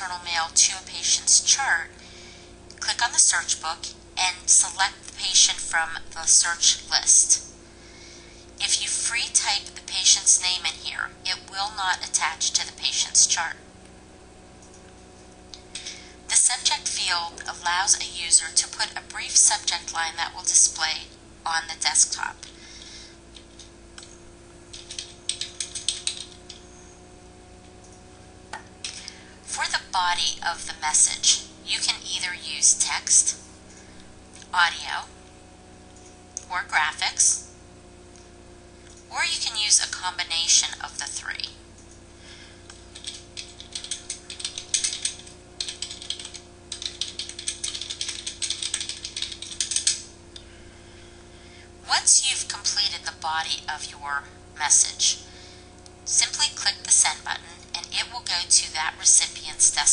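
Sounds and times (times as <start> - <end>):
computer keyboard typing: 23.3 - 26.6, 42.8 - 50.0.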